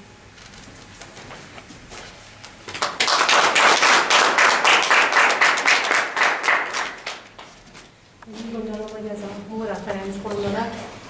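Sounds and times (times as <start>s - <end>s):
small audience applauding: 2.7s - 7.6s.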